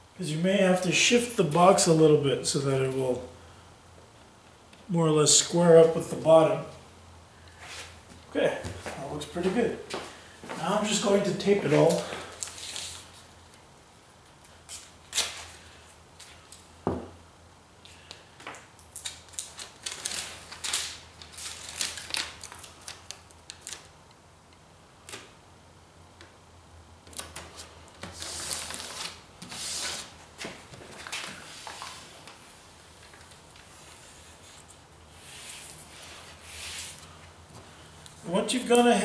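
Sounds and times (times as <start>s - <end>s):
foil tape crackling: 18.8s - 24.0s, 27.0s - 32.4s
foil crinkling rustles: 18.9s - 23.9s, 27.4s - 34.4s.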